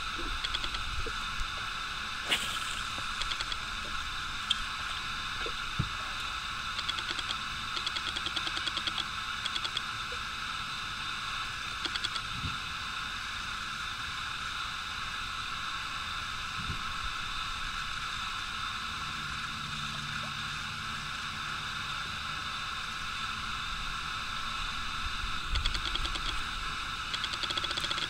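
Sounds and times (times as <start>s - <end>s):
open-air ambient hiss: 0.0s - 28.0s
fishing reel ticking: 0.1s - 1.2s, 2.9s - 4.7s, 6.6s - 9.9s, 11.7s - 12.3s, 25.5s - 28.0s.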